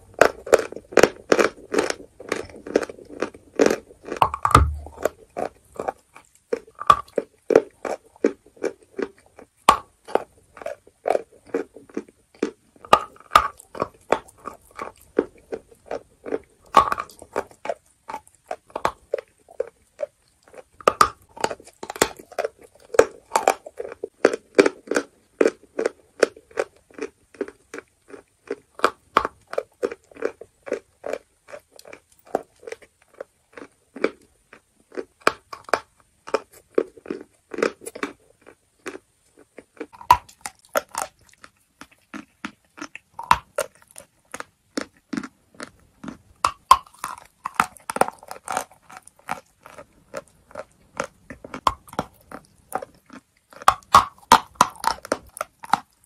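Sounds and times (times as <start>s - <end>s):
chalk crunching while chewed: 0.0s - 56.0s.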